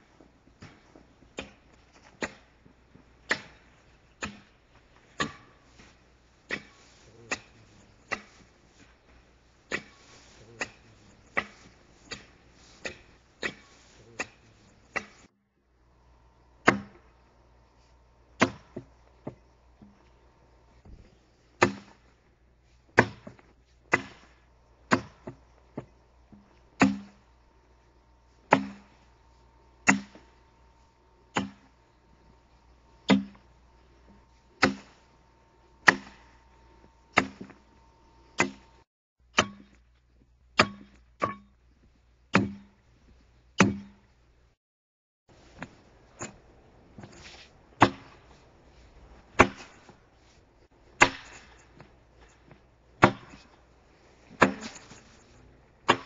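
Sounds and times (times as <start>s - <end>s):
axe chopping log: 0.6s - 2.5s, 3.2s - 3.6s, 4.2s - 4.5s, 5.2s - 5.6s, 6.5s - 8.4s, 9.7s - 10.0s, 10.6s - 15.3s, 16.6s - 17.1s, 18.4s - 20.0s, 21.6s - 22.1s, 22.9s - 27.3s, 28.5s - 29.0s, 29.8s - 30.4s, 31.3s - 31.8s, 33.0s - 33.5s, 34.1s - 35.0s, 35.8s - 39.8s, 40.6s - 41.5s, 42.3s - 42.8s, 43.6s - 44.0s, 47.8s - 48.3s, 49.4s - 50.0s, 50.9s - 53.6s, 54.3s - 55.2s.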